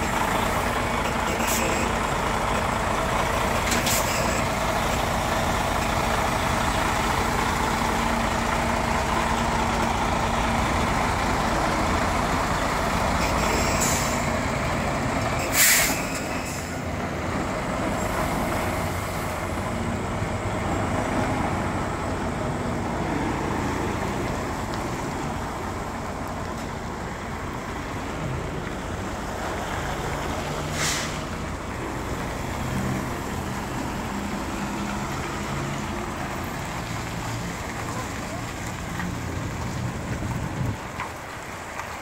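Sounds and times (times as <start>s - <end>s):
diesel truck engine running: 0.0s - 42.0s
air brake hisses: 15.4s - 16.8s, 30.7s - 31.3s.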